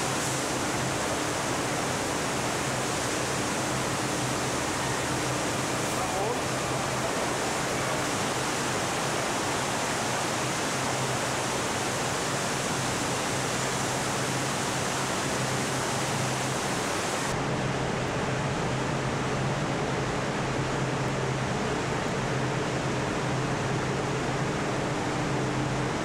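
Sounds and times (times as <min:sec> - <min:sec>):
rushing liquid: 0:00.0 - 0:17.4.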